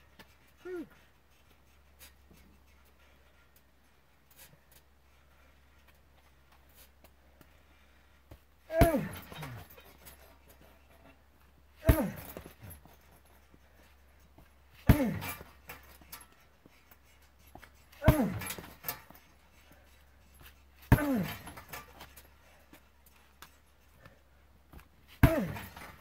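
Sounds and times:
punching bag kicks: 8.7s - 10.3s, 11.8s - 13.0s, 14.8s - 16.2s, 17.9s - 19.2s, 20.8s - 22.2s, 25.1s - 26.0s.

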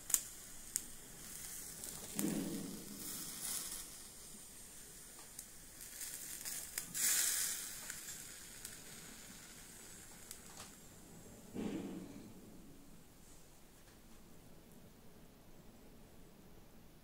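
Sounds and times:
steaks sizzling on a grill: 0.0s - 11.0s.

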